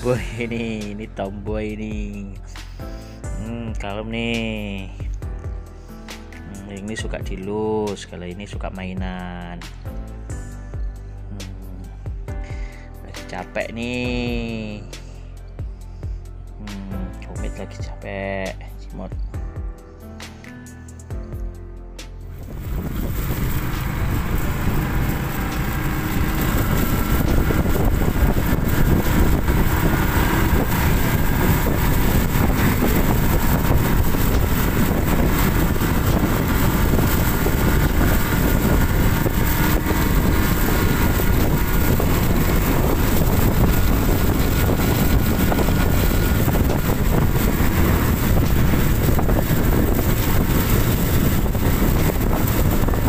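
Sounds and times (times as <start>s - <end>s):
vehicle road noise: 22.1s - 53.0s
rushing wind: 22.3s - 53.0s.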